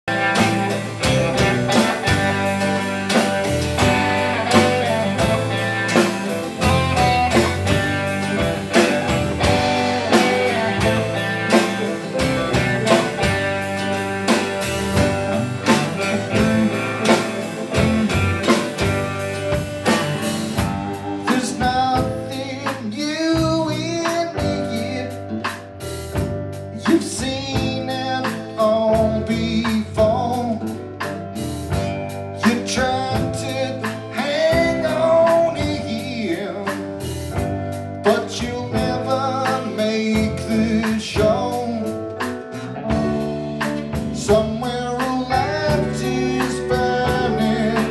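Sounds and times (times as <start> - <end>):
live rock band playing: 0.0 - 47.9
man singing lead vocal: 4.5 - 13.3, 15.7 - 18.3, 21.0 - 25.5, 26.7 - 31.0, 32.4 - 37.4, 38.0 - 43.1, 44.0 - 47.9.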